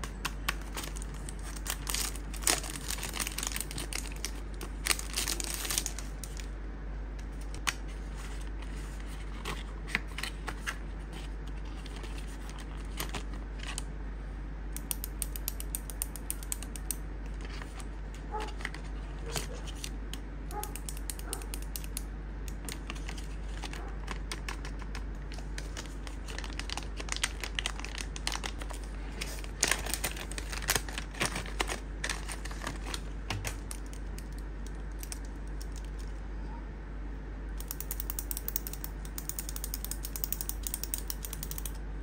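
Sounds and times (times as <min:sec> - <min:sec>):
packaging rustling and clicks: 0:00.0 - 0:06.5, 0:22.6 - 0:36.1.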